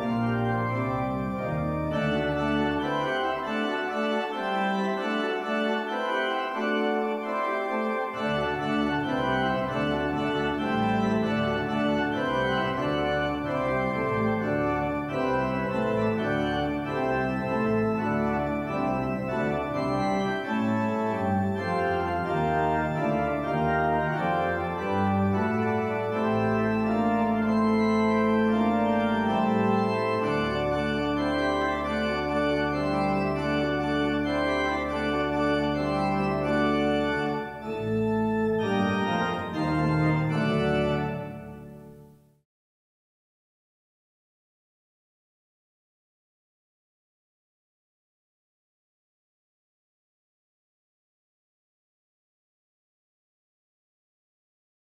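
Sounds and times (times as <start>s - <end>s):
organ playing chords: 0.0s - 42.1s.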